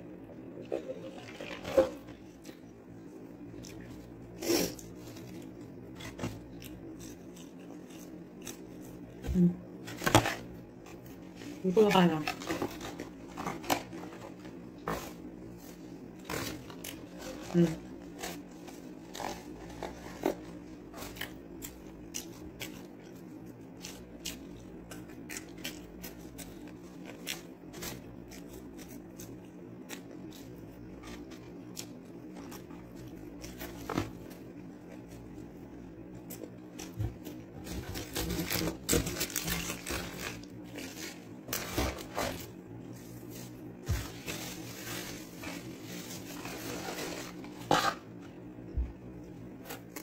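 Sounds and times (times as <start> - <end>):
person chewing fries: 0.7 - 11.3, 12.8 - 41.4
paper packaging rustling: 11.3 - 21.2, 37.6 - 48.0.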